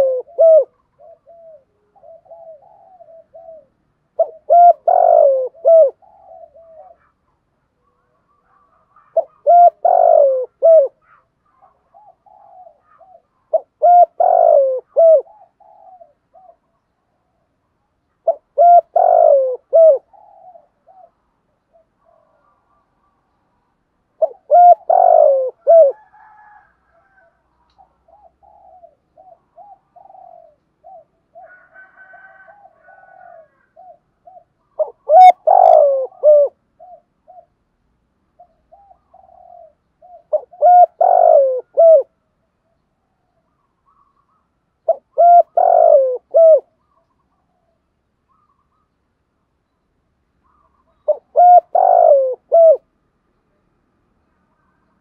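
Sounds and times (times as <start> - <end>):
dove cooing: 0.0 - 17.6, 18.2 - 23.4, 24.1 - 37.7, 38.3 - 42.2, 43.5 - 48.8, 50.4 - 52.9.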